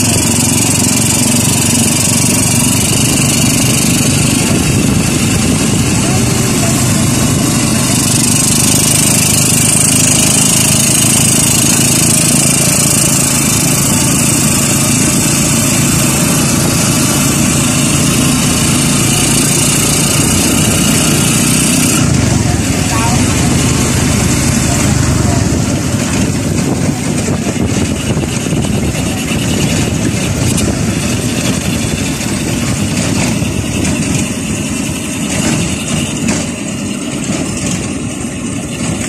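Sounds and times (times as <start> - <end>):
motorcycle engine running: 0.0 - 39.0
road noise: 0.0 - 39.0
wind noise: 2.2 - 9.0, 20.1 - 36.3.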